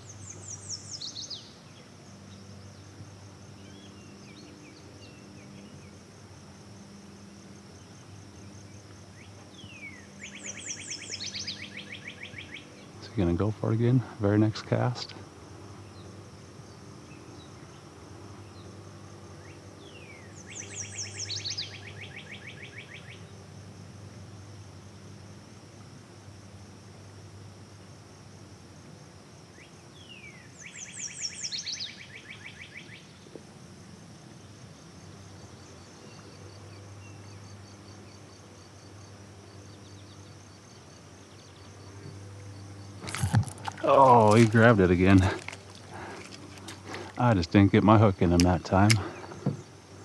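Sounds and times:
songbird singing: 0:00.0 - 0:27.9, 0:28.7 - 0:50.0
high insect drone: 0:00.0 - 0:50.0.

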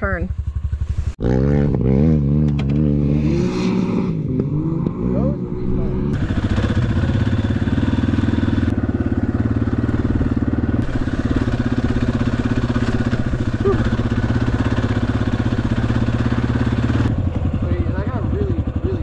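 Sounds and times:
dirt bike engine running: 0:00.0 - 0:19.0.

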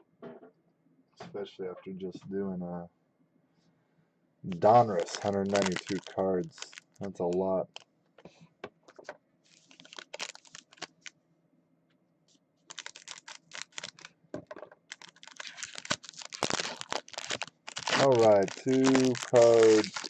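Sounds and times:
foil wrapper crinkling: 0:04.5 - 0:07.8, 0:09.5 - 0:11.1, 0:12.7 - 0:14.1, 0:14.8 - 0:20.0.

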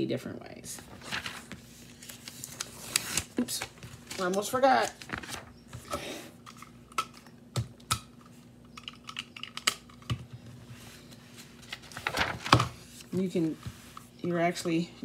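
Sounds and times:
faint steady hum: 0:00.0 - 0:15.0
pages flipping: 0:00.8 - 0:07.2, 0:10.7 - 0:14.1.

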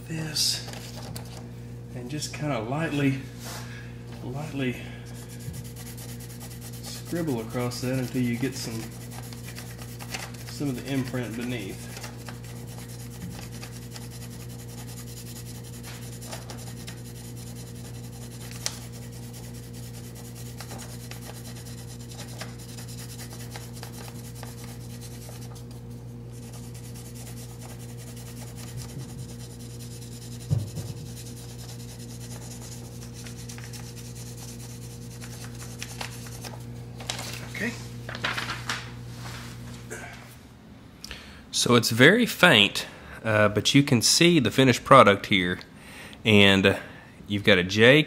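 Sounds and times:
steady low hum: 0:00.0 - 0:48.0
pencil scratching on paper: 0:05.2 - 0:25.7, 0:26.3 - 0:36.4.

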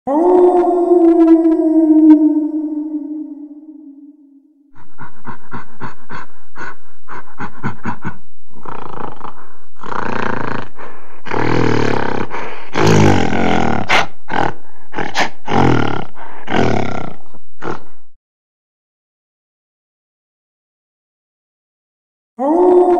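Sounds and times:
animal roars and growls: 0:00.1 - 0:04.5, 0:08.6 - 0:18.0, 0:22.4 - 0:22.9.

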